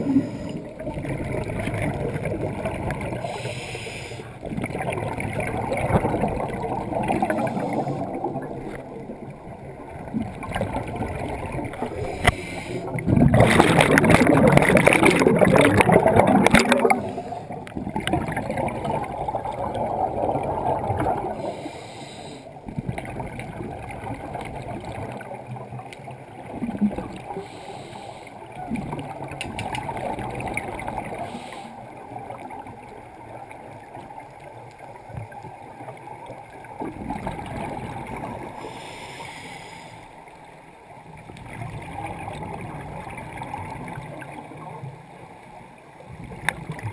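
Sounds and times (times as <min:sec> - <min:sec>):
exhaled bubbles rushing: 0:00.0 - 0:03.5, 0:04.3 - 0:21.6, 0:22.6 - 0:27.4, 0:28.5 - 0:38.8, 0:41.1 - 0:45.0
regulator breathing hiss: 0:03.2 - 0:04.4, 0:12.0 - 0:13.0, 0:21.4 - 0:22.6, 0:27.4 - 0:28.4, 0:38.6 - 0:40.2.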